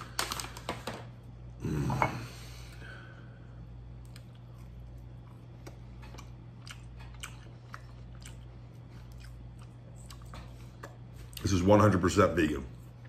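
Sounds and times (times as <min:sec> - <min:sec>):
chewing crisp food: 0:03.8 - 0:11.7.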